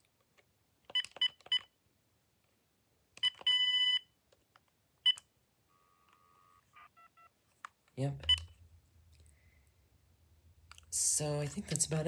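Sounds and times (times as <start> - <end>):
phone keypad beeps: 0.9 - 1.7, 3.2 - 4.1, 5.0 - 7.3, 8.3 - 8.5.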